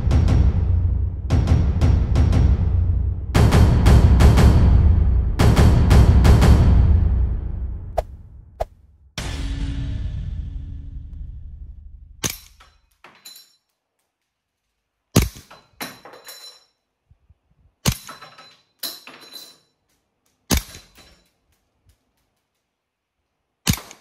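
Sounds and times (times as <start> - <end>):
airsoft pistol shots: 20.5 - 20.9, 23.7 - 24.0.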